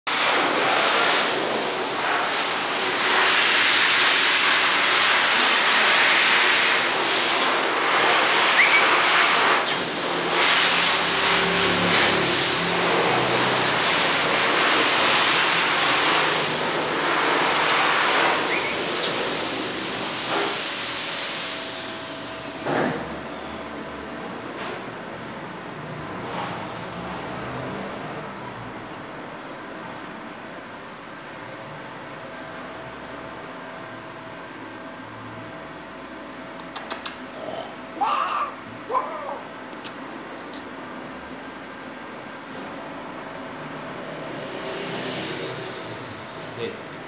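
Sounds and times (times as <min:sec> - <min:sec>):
pet dryer hissing and whining: 0:00.1 - 0:25.7.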